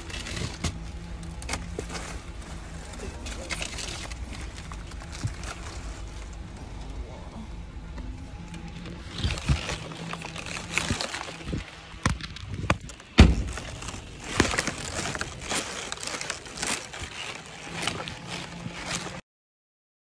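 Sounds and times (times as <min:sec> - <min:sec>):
plastic wrap crinkling: 0:00.0 - 0:06.9, 0:08.4 - 0:19.2
heavy thump: 0:12.0 - 0:15.2.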